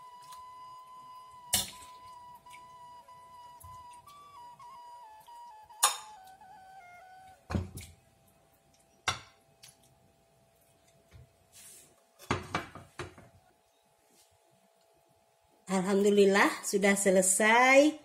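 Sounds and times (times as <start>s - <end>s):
background music melody: 0.0s - 7.6s.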